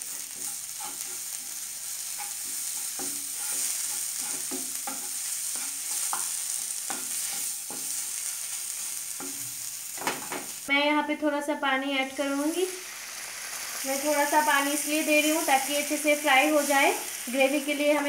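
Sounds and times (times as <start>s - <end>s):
paste frying in oil: 0.0s - 10.8s, 11.6s - 18.0s
wooden spatula scraping pan: 2.1s - 6.3s.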